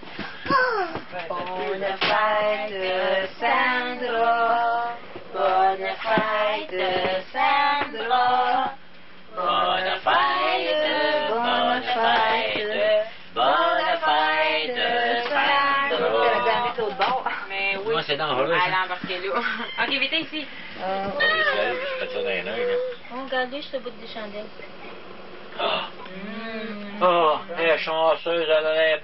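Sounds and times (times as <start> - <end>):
group of people singing: 1.2 - 17.2.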